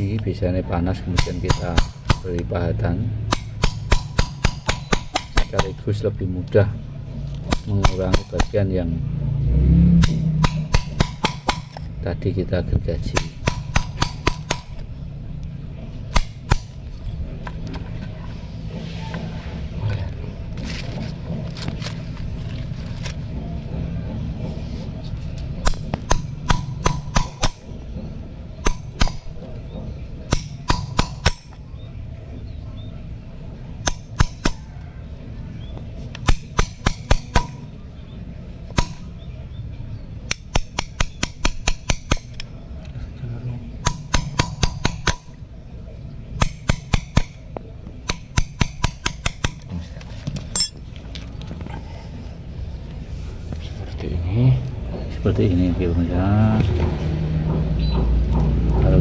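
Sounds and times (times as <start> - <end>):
hammer striking steel chisel: 1.1 - 2.4, 3.3 - 5.8, 7.5 - 8.6, 10.0 - 11.8, 13.0 - 14.8, 25.6 - 27.7, 28.6 - 29.4, 30.3 - 31.6, 33.8 - 34.6, 36.2 - 37.7, 38.8 - 39.1, 40.3 - 42.4, 43.8 - 45.4, 46.4 - 47.4, 48.0 - 49.6.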